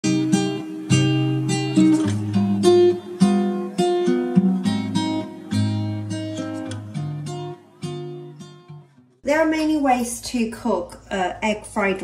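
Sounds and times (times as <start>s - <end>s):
acoustic guitar melody: 0.0s - 9.8s.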